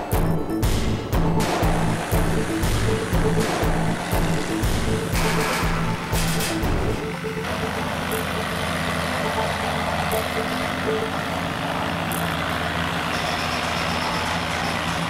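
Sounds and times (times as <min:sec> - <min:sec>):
robot machinery running: 0:01.3 - 0:15.0.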